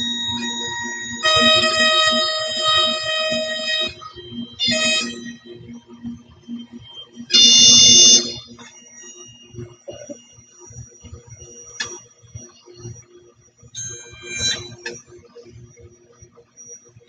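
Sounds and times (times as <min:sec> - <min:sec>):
high-pitched buzzer tone: 0:00.0 - 0:10.3, 0:13.8 - 0:15.0.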